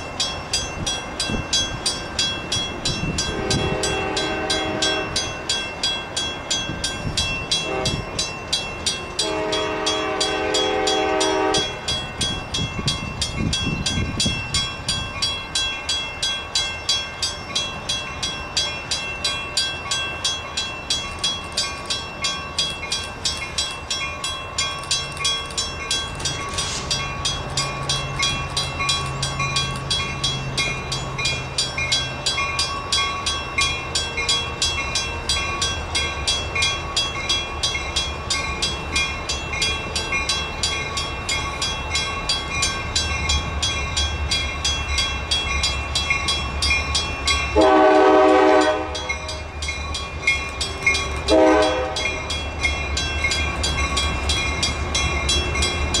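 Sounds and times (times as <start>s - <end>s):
crossing warning bell ringing: 0.0s - 56.0s
diesel locomotive engine rumble: 0.0s - 56.0s
locomotive air horn: 3.3s - 5.2s, 7.6s - 8.1s, 9.2s - 11.8s, 47.6s - 49.2s, 51.3s - 52.1s.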